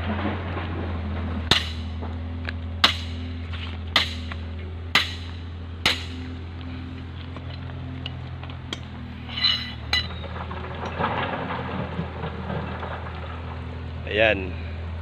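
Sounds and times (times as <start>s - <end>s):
steady low hum: 0.0s - 15.0s
steel bars clinking and knocking: 7.4s - 11.0s.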